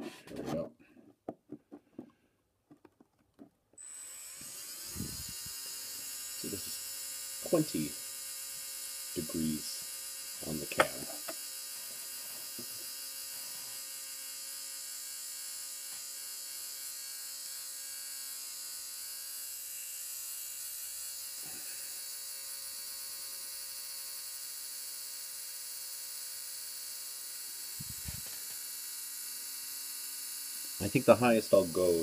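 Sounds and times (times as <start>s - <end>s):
electric motor whining: 3.8s - 13.9s, 27.3s - 32.0s.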